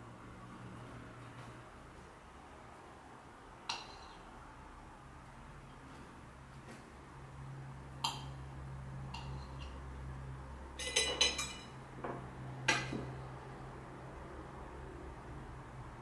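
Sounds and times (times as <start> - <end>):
plate and cutlery clinking: 9.1 - 9.8, 10.8 - 11.8.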